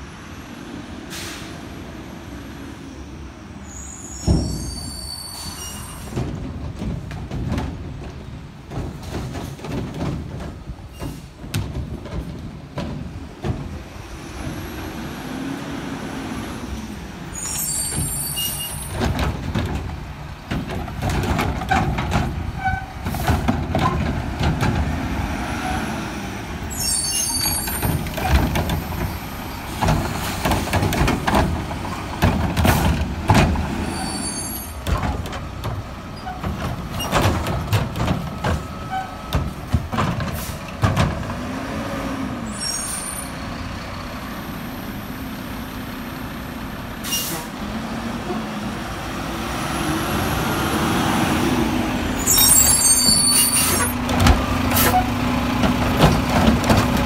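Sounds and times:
air brakes hissing: 0:01.1 - 0:01.8, 0:03.0 - 0:06.2, 0:33.8 - 0:34.8, 0:40.3 - 0:40.7, 0:47.0 - 0:47.5, 0:52.2 - 0:54.0
knocks and clanks: 0:06.1 - 0:13.8, 0:18.8 - 0:25.2, 0:27.4 - 0:33.8, 0:34.8 - 0:41.5, 0:53.0 - 0:57.0.

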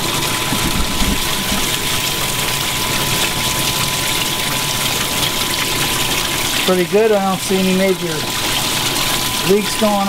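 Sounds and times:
water pump humming: 0:00.0 - 0:10.0
water rushing from a hose: 0:00.0 - 0:10.0.

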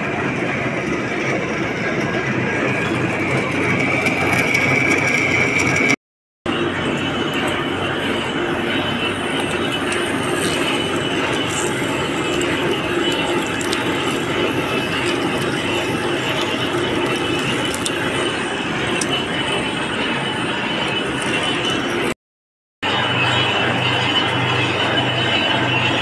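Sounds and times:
metal lathe hum: 0:06.5 - 0:22.2.

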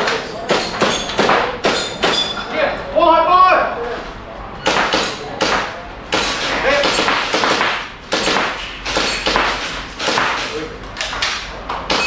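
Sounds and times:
airsoft rifle shots: 0:04.7 - 0:10.6.

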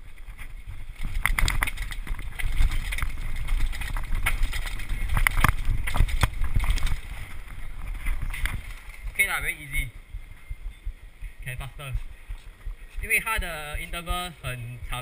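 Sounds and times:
bicycle wheels knocking on steps: 0:00.0 - 0:09.2
steady low rumble: 0:00.0 - 0:15.0.

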